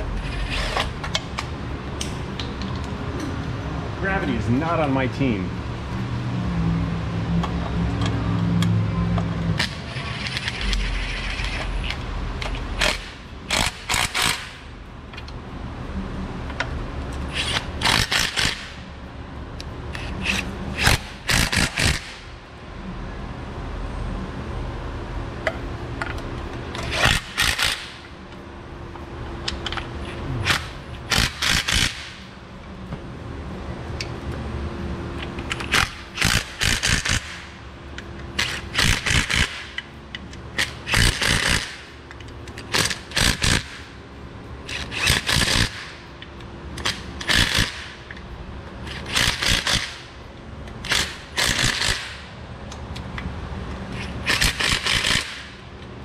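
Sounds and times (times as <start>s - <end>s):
steady low hum: 0.0s - 56.0s
ratchet wrench clicking: 9.6s - 14.6s, 16.5s - 18.8s, 19.6s - 22.2s, 26.0s - 28.1s, 29.4s - 32.2s, 35.2s - 43.8s, 44.7s - 48.2s, 48.8s - 55.9s.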